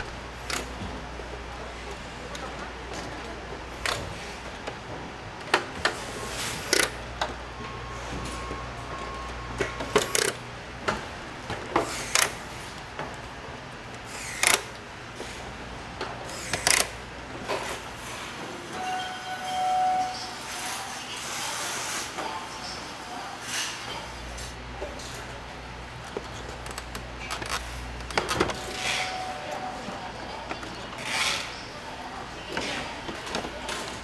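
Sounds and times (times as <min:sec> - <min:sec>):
brief tones: 0:07.6 - 0:10.3, 0:18.8 - 0:20.5, 0:28.6 - 0:30.1.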